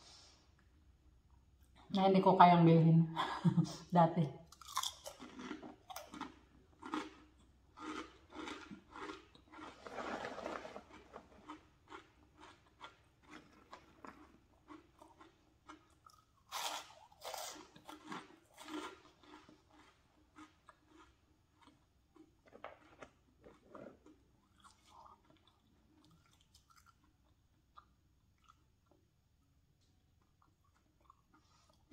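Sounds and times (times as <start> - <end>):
crunchy chips being chewed: 4.5 - 29.0.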